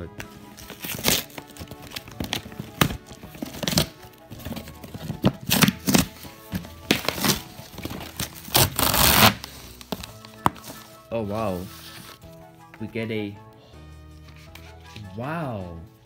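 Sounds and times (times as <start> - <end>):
background music: 0.0 - 16.0
cardboard box tearing: 0.6 - 9.6.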